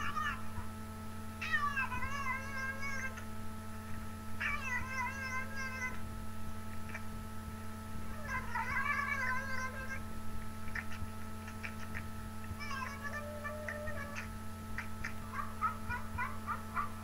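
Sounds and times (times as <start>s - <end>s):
cat meowing: 12.6s - 14.2s.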